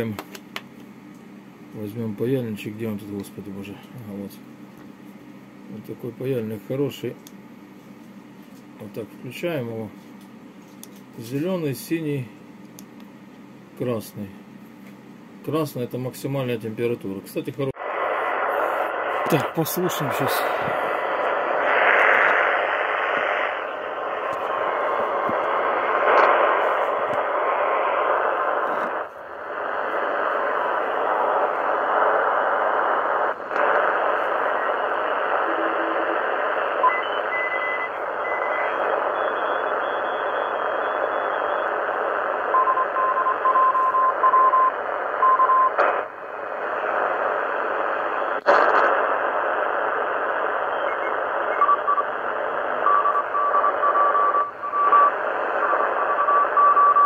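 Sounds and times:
radio static hiss: 1.7 - 4.5, 5.7 - 7.3, 8.5 - 12.3, 15.4 - 57.0
morse code beeps: 42.6 - 45.8, 50.8 - 52.0, 52.8 - 55.2, 56.0 - 57.0.

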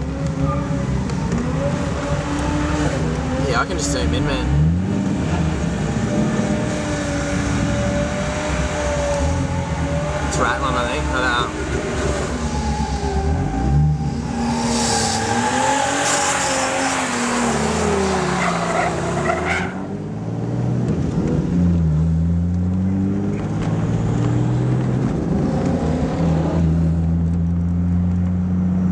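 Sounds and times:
car engine revving hard: 0.0 - 28.8
tyres squealing in a burnout: 7.8 - 19.9.

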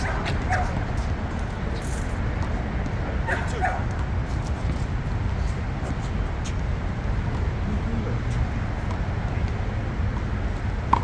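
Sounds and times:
city traffic rumble: 0.0 - 11.0.

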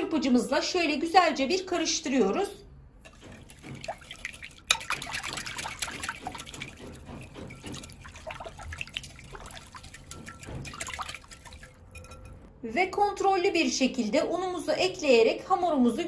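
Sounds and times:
whisk sloshing liquid: 3.0 - 12.4
whisk wires clicking on glass: 3.0 - 12.5.

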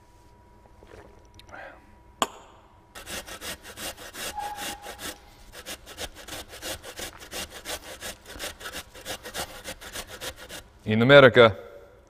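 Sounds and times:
potato grated on metal grater: 3.0 - 10.7.

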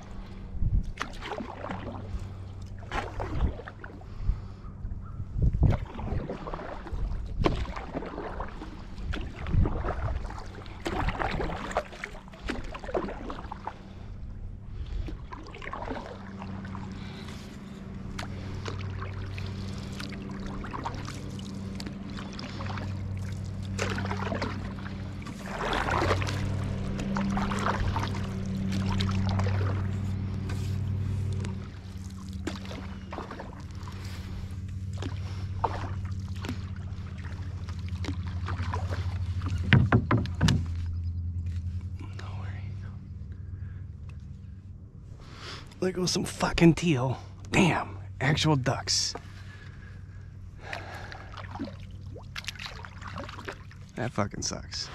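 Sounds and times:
canoe paddle strokes: 0.0 - 4.6, 5.6 - 47.0, 48.3 - 54.1
low hum: 0.0 - 54.9
water dripping and splashing: 5.7 - 13.7, 18.1 - 41.6, 50.6 - 54.0.

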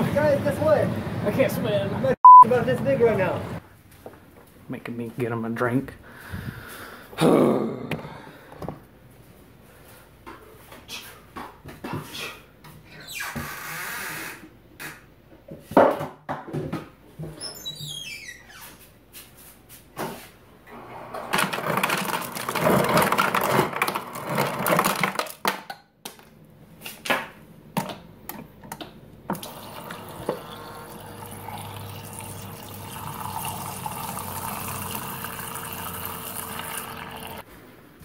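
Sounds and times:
water pouring into plastic cup: 29.4 - 37.4.

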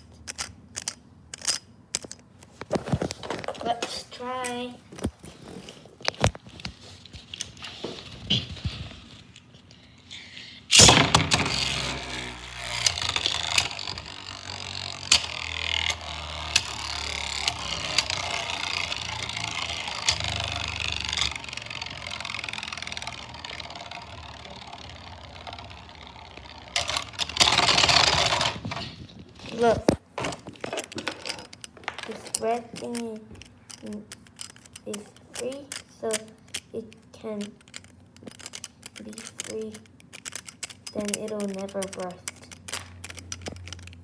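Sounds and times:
spinning top rattling on plastic: 0.0 - 5.0, 6.0 - 44.0
spinning top launcher rip: 10.7 - 29.7.

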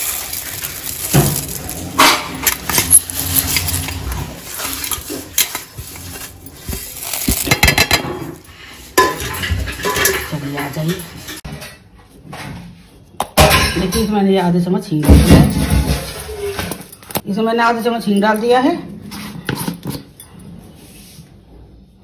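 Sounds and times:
seeds rattling on steel plate: 0.0 - 8.1.

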